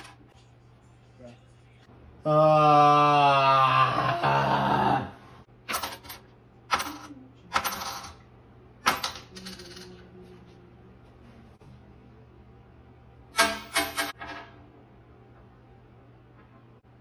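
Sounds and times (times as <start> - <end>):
coin clinking on tabletop: 5.7 - 8.2, 8.8 - 10.0
coin spinning and ringing: 6.8 - 8.2, 8.9 - 9.9.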